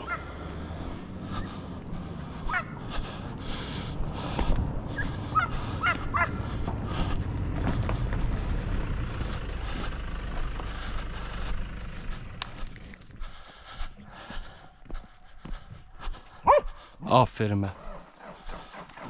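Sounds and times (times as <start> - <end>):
low rumble: 0.6 - 14.6
footsteps on gravel: 5.5 - 16.9.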